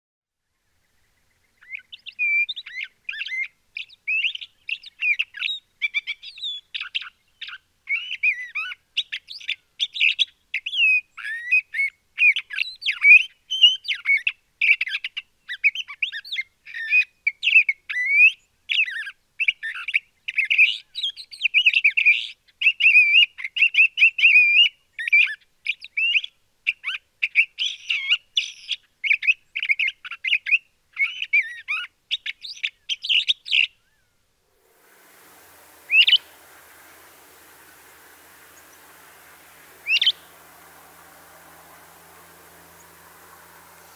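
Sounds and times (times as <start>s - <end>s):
bird singing varied phrases: 34.7s - 43.9s.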